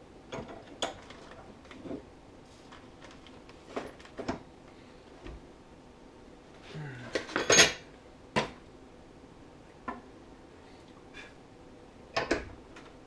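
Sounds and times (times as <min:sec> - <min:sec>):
metal tools clinking on workbench: 0:07.3 - 0:07.8.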